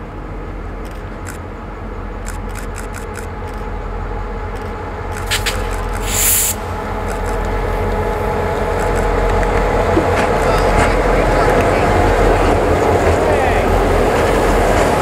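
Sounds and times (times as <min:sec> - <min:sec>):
diesel locomotive engines droning: 0:00.0 - 0:15.0
short hiss: 0:05.2 - 0:06.8.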